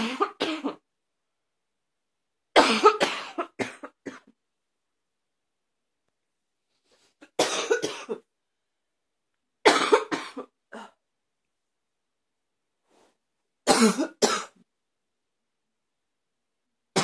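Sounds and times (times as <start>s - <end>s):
person coughing harshly: 0.0s - 0.8s, 2.6s - 4.4s, 7.3s - 8.3s, 9.6s - 11.0s, 13.7s - 14.6s.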